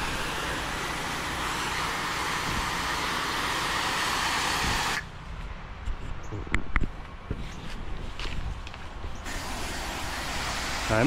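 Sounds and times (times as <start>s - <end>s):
pressure washer spray hissing: 0.0s - 5.1s, 9.3s - 11.0s.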